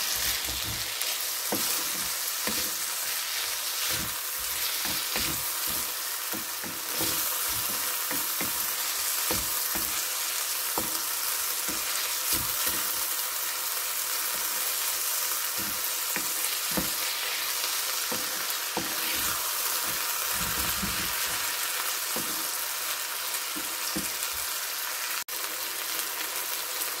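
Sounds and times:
wooden spatula scraping a pan: 0.0 - 10.1, 11.7 - 13.0, 15.5 - 22.6
food sizzling in a pan: 0.0 - 27.0.

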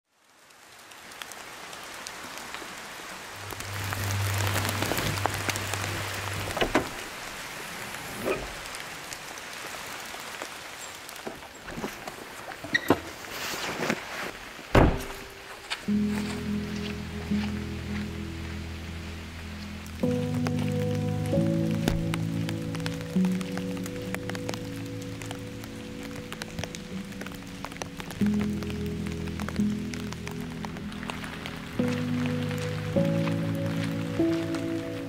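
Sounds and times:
steady rain falling: 0.0 - 35.0
car rear hatch thump: 14.7 - 15.3.

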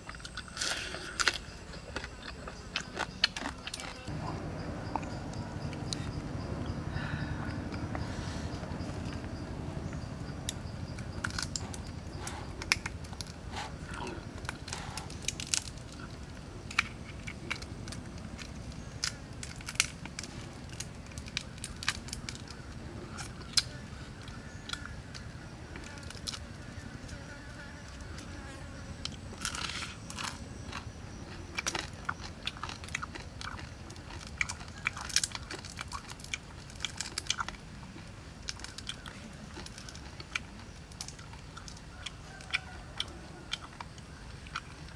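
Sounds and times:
chewing: 0.0 - 26.5, 28.5 - 44.9
crayfish shells cracking: 10.6 - 26.5, 29.0 - 44.9.

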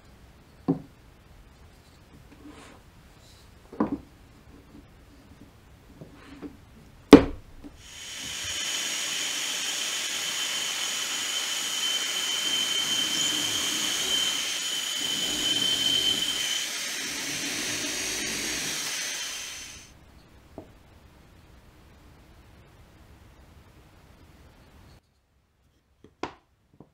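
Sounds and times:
vacuum dust extractor hissing: 7.7 - 20.0
drill boring into wood: 7.8 - 19.9
high whine: 7.8 - 19.9.

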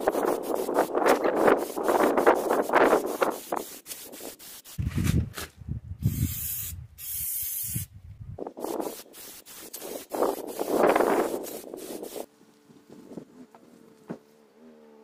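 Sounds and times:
aerosol spray can hissing: 0.0 - 4.8, 6.1 - 7.9, 8.6 - 12.3
rubbing and scraping: 0.0 - 5.6, 8.4 - 12.3.

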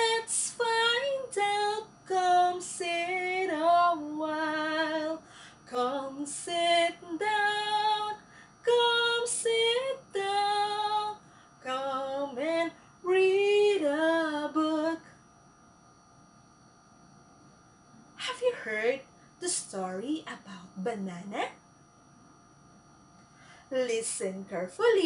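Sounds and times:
woman singing: 0.0 - 15.1.

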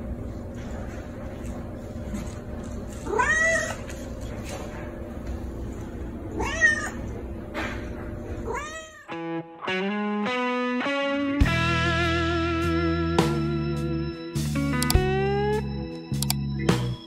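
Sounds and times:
cat meowing: 3.0 - 3.9, 6.4 - 7.1, 8.5 - 9.2
guitar music: 9.1 - 17.0.

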